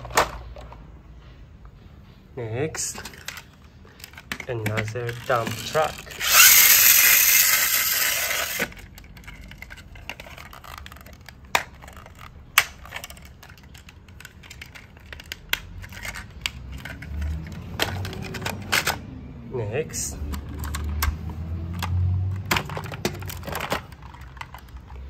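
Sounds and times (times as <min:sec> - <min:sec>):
rustling scrape of plastic toy: 0:03.0 - 0:12.3
plastic clicks: 0:03.0 - 0:19.1, 0:20.2 - 0:25.0.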